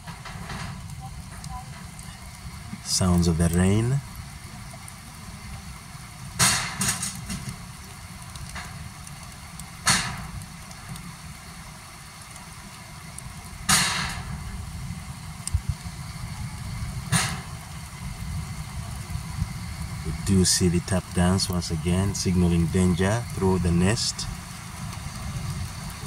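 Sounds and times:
rain with low rumble: 0:00.0 - 0:26.0
sharp cracks: 0:06.3 - 0:11.1, 0:13.4 - 0:14.4, 0:17.0 - 0:18.0.

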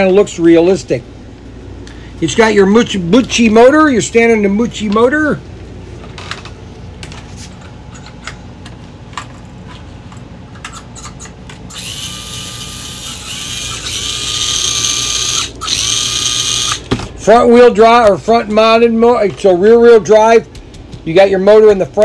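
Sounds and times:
small electric motor whining: 0:11.7 - 0:16.9.

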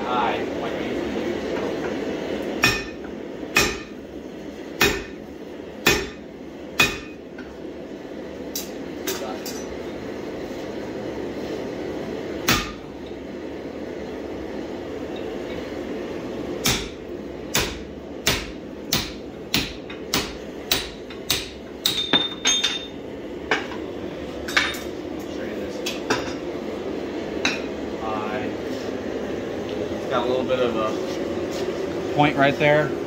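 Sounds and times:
steady background hum: 0:00.0 - 0:33.0
hammer striking hot steel: 0:01.5 - 0:04.0, 0:04.8 - 0:05.2, 0:05.8 - 0:07.6, 0:12.4 - 0:12.9, 0:16.6 - 0:23.8, 0:27.4 - 0:27.8.

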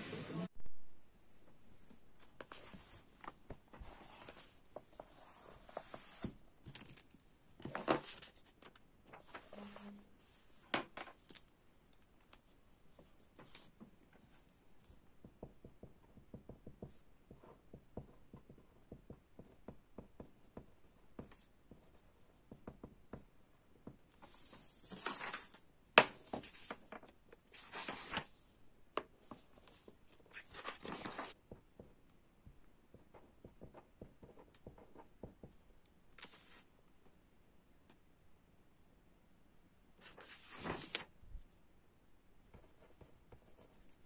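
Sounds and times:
pages rustling: 0:24.2 - 0:28.5, 0:29.3 - 0:31.4, 0:36.2 - 0:36.6, 0:40.0 - 0:41.1
pen writing on paper: 0:42.5 - 0:43.8.

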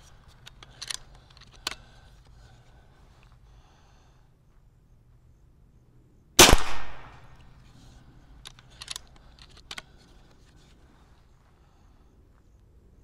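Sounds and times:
light clicks: 0:00.0 - 0:03.4, 0:07.3 - 0:11.0
air rifle shot: 0:06.4 - 0:07.4.

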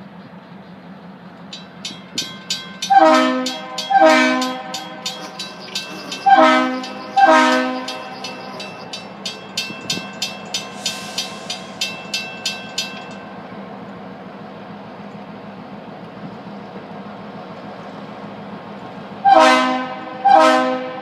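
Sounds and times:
crossing signal bell ringing: 0:01.5 - 0:13.7
locomotive horn blasts: 0:02.8 - 0:08.6, 0:19.2 - 0:21.0.

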